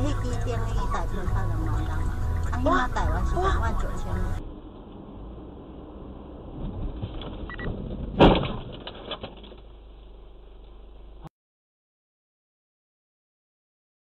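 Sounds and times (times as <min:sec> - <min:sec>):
low road rumble: 0:00.0 - 0:11.3
rattles: 0:06.4 - 0:10.8
loud car crash bang: 0:06.5 - 0:09.5.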